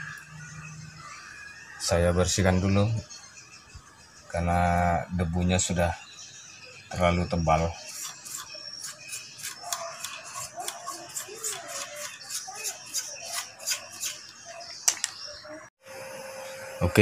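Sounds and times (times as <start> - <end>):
brush scratching circuit board: 7.8 - 14.4.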